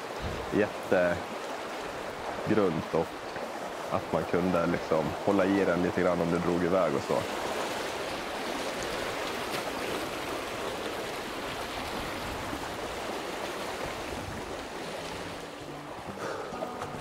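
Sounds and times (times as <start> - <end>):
faint music: 15.3 - 17.0.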